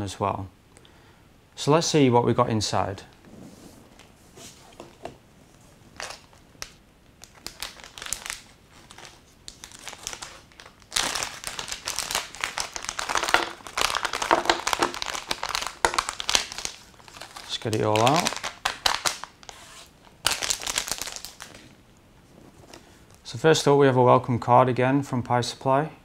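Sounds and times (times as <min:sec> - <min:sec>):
plastic bags crinkling: 0:05.9 - 0:21.8.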